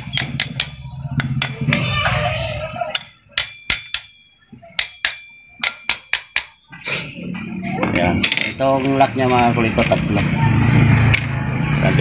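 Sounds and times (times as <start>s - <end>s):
hammer striking metal: 0.0s - 7.5s.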